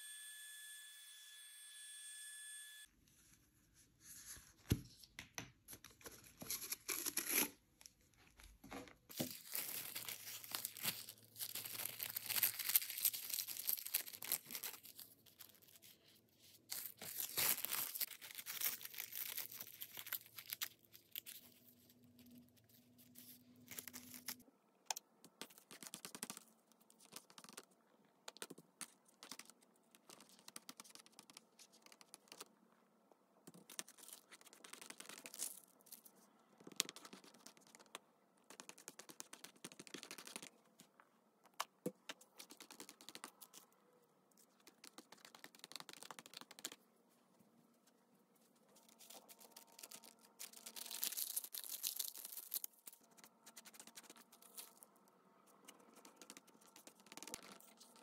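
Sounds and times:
paper tearing and crinkling: 9.1 - 16.0, 16.7 - 21.6, 23.0 - 24.4, 48.8 - 54.8.

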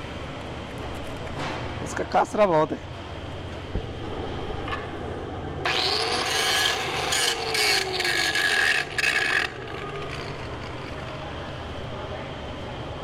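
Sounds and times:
scraping metal weld: 5.7 - 11.2.

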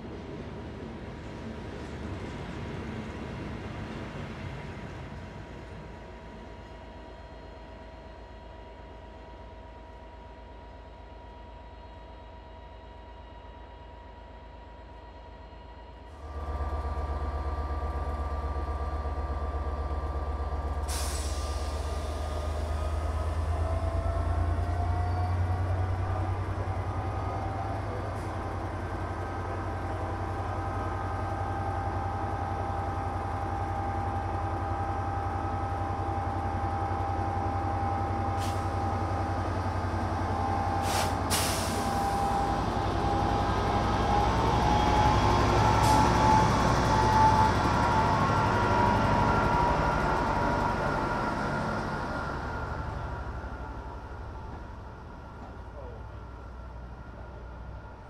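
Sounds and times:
locomotive engine drone: 0.0 - 58.0
sharp air hisses: 40.8 - 42.0.

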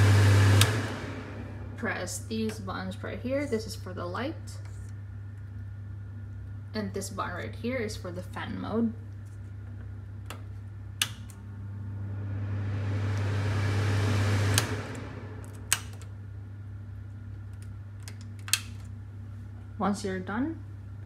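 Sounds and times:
extractor fan rushing air: 0.0 - 2.3, 11.1 - 16.4
steady low hum: 0.0 - 21.0
rocker switch click: 11.0 - 11.4, 15.4 - 16.1.

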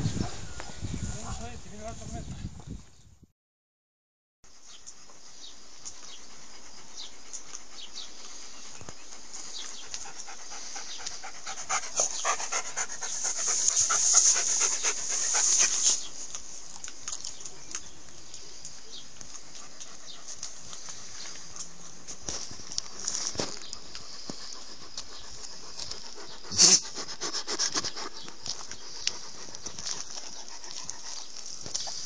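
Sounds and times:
steady hiss: 5.2 - 16.6
dog panting: 5.9 - 16.5, 18.7 - 23.0, 23.6 - 32.0.

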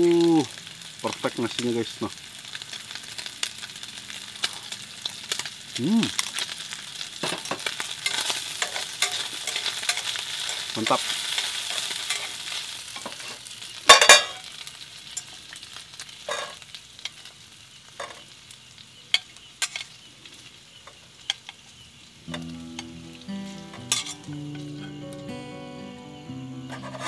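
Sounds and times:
meat sizzling in a pan: 0.0 - 27.0
chopsticks scraping metal pan: 7.3 - 14.4, 16.3 - 16.6, 23.7 - 24.9, 26.7 - 27.0
soft guitar music: 22.3 - 27.0.

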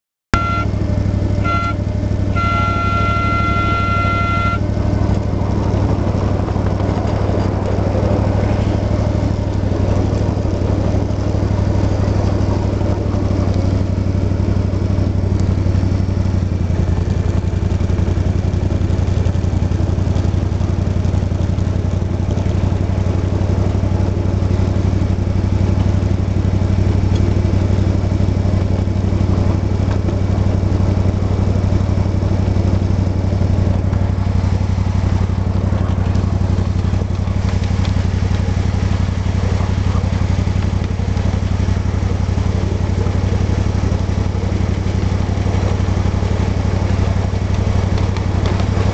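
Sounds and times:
locomotive horn: 0.3 - 6.9
model locomotive engine hum: 0.4 - 17.2, 23.4 - 48.9.

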